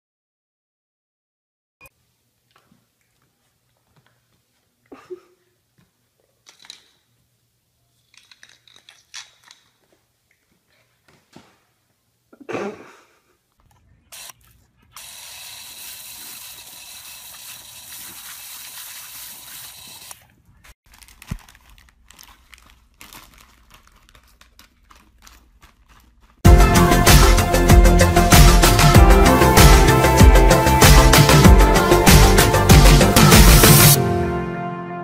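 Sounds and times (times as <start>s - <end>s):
garden hose spraying water: 15.0s - 20.2s
plastic snack bag crackling: 16.2s - 26.4s.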